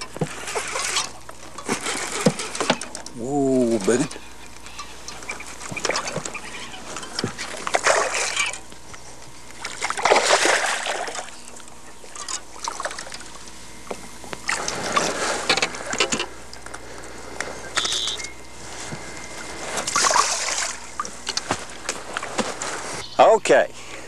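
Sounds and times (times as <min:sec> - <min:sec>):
fish splashing at water surface: 0:07.4 - 0:08.6, 0:09.6 - 0:11.4, 0:19.8 - 0:22.8.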